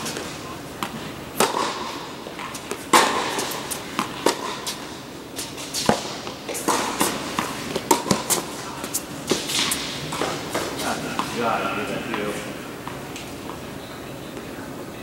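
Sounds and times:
tennis ball bouncing on court: 0.0s - 11.4s
rackets striking tennis ball: 0.0s - 13.6s.

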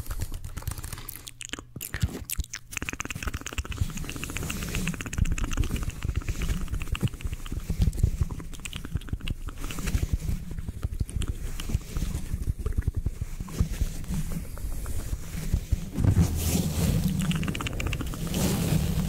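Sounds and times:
sponge scratching microphone grille: 5.6s - 19.0s
low handling bumps: 14.1s - 19.0s
low rumble: 14.4s - 19.0s.

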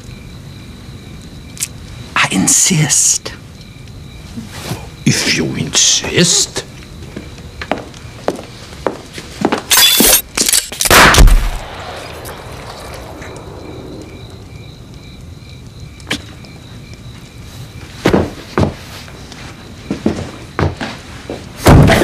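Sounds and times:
sharp hissing snap: 1.2s - 1.9s, 10.8s - 16.4s
pistol gunshot: 10.9s - 13.0s.

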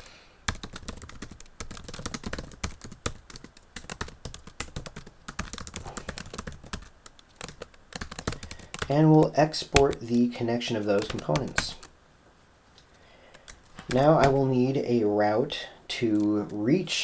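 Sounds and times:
computer keyboard typing: 0.5s - 10.1s, 10.8s - 11.9s, 13.3s - 14.4s.

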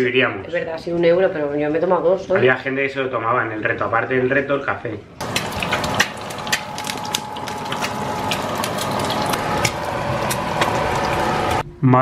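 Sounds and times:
egg sizzling in oil: 5.2s - 11.6s
oil crackling and popping: 5.2s - 11.6s.

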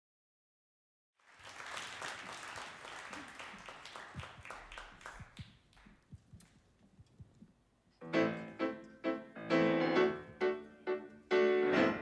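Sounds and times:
audience applauding: 1.2s - 6.0s.

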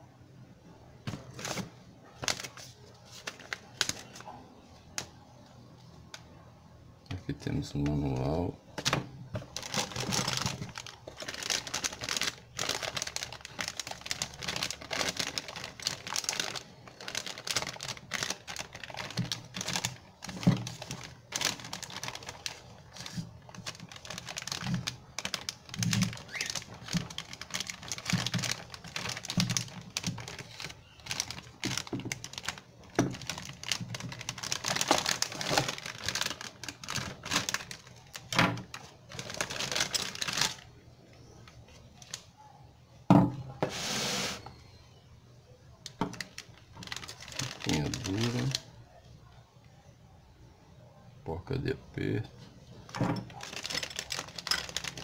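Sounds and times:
plastic bags crinkling: 1.1s - 4.3s, 7.5s - 40.7s, 45.9s - 48.7s, 52.8s - 55.0s.

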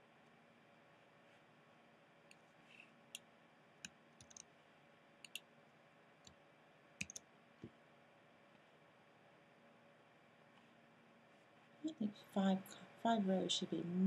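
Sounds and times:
keyboard and mouse clicks: 3.8s - 4.5s, 5.2s - 5.4s, 7.0s - 7.2s.

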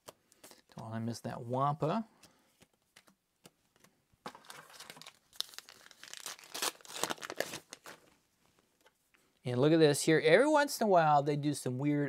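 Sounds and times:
wrapper rustling and crackling: 4.3s - 8.2s.

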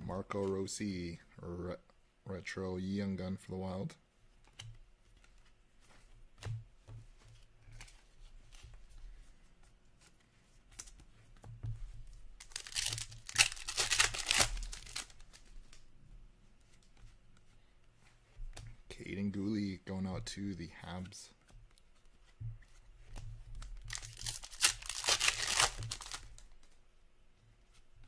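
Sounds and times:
card packaging tearing and crinkling: 12.4s - 15.4s, 23.9s - 26.4s
cards clicking and sliding: 12.4s - 15.8s, 23.9s - 26.7s.

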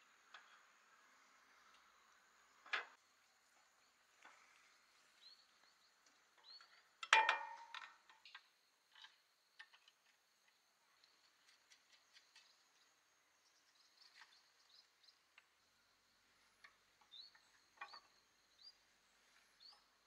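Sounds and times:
metal tools tapping and clicking: 7.0s - 8.4s.

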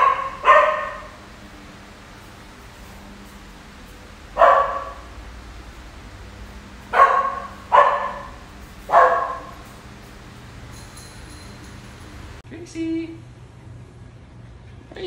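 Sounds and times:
puppy barking: 0.0s - 1.3s, 4.3s - 5.2s, 6.9s - 9.9s.

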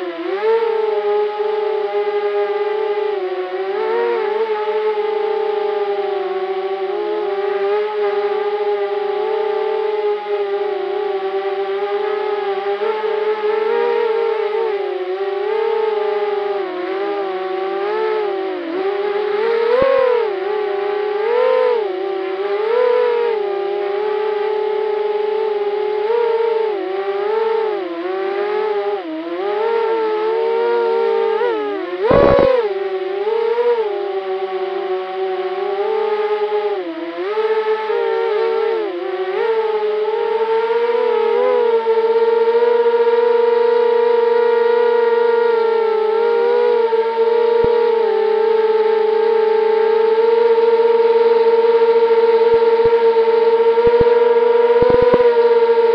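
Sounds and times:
quadcopter motors whining: 12.2s - 36.7s, 37.3s - 55.9s
quadcopter propellers whining: 30.4s - 32.9s, 52.6s - 55.9s.

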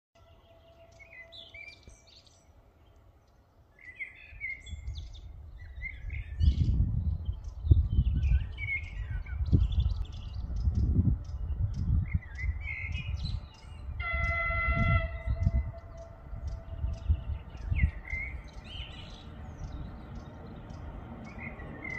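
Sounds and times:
train horn: 0.2s - 2.9s, 13.9s - 17.9s
songbirds chirping and singing: 0.2s - 21.9s.

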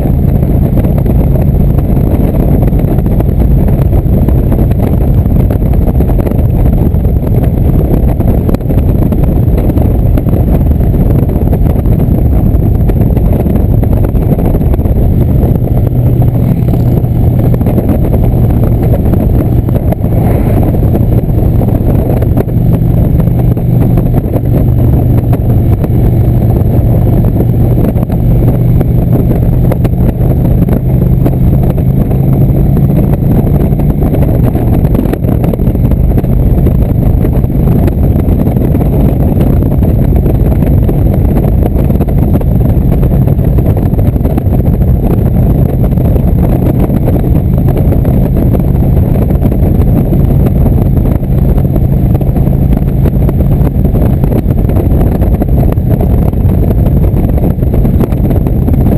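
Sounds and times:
motorcycle engine cruising: 0.0s - 58.9s
wind rush on microphone: 0.0s - 58.9s.

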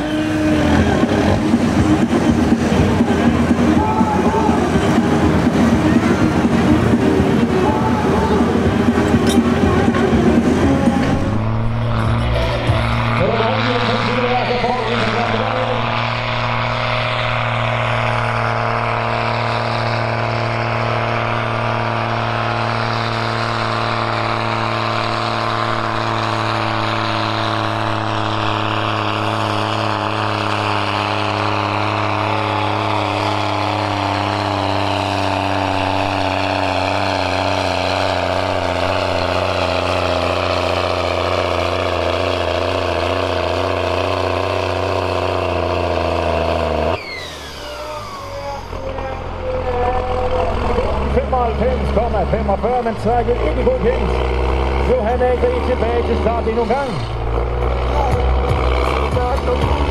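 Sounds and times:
tractor diesel engine under load: 0.0s - 59.9s.

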